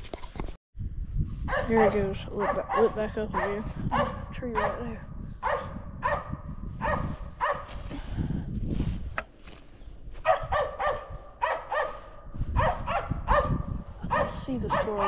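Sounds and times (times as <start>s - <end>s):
dog barking: 1.5s - 7.7s, 10.2s - 15.0s.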